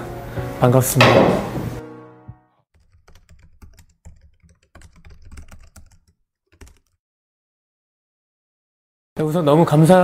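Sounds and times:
keyboard typing clicks: 2.8 - 7.0.

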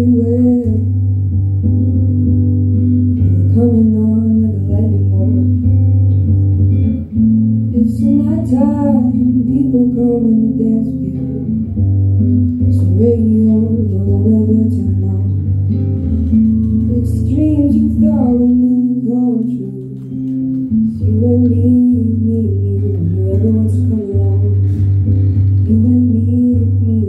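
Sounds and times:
woman singing: 0.0 - 1.9, 3.2 - 6.0, 7.6 - 11.9, 12.6 - 27.0
acoustic guitar: 0.0 - 27.0.

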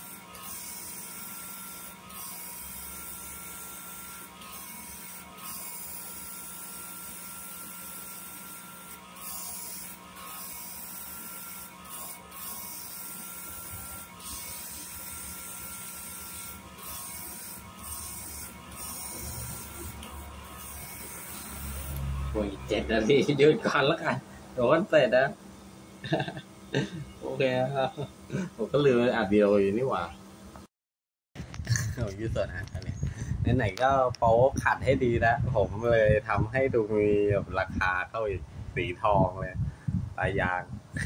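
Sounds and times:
cnc machine hissing: 0.0 - 25.2
machine whining tone: 0.0 - 28.2.

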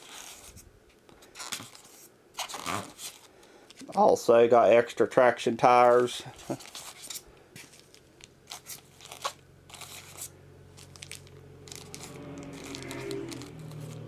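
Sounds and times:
packaging crinkling and crunching: 6.4 - 14.0
low hum: 9.4 - 14.0.

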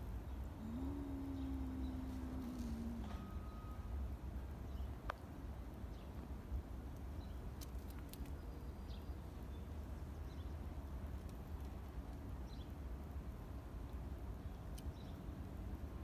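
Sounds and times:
low rumble: 0.4 - 4.5
faint high chirps: 0.6 - 4.1
small clicks: 7.0 - 8.4.

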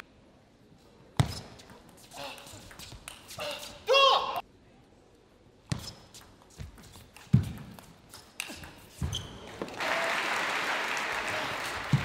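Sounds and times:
applause: 9.7 - 12.0.

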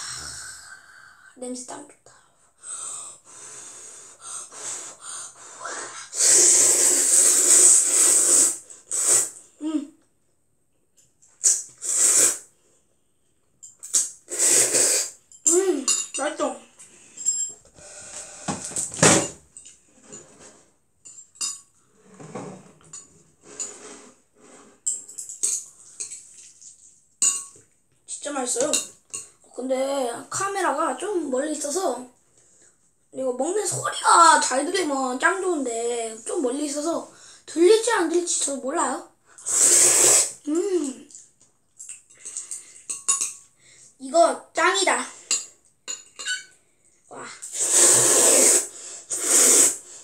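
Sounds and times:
child blowing on food: 3.3 - 9.5, 11.4 - 12.5, 14.2 - 15.2, 39.4 - 40.5, 47.3 - 50.0
loud noodle slurp: 6.1 - 9.4, 11.4 - 12.5, 14.0 - 15.2, 39.4 - 40.4, 47.4 - 50.0.

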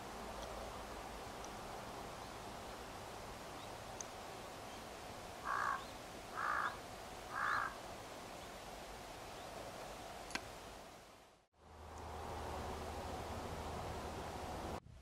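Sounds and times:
outdoor background hiss: 0.0 - 15.0
crow cawing: 5.4 - 7.8.

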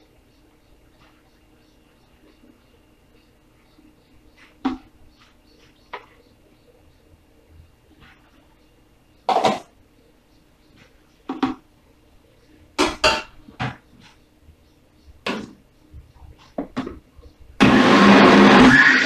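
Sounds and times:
plastic cups and utensils clattering: 9.3 - 9.7
blender motor rushing: 17.6 - 19.0.

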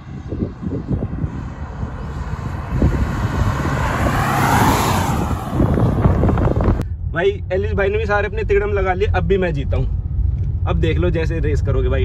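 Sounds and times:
cars racing past: 0.0 - 6.8.

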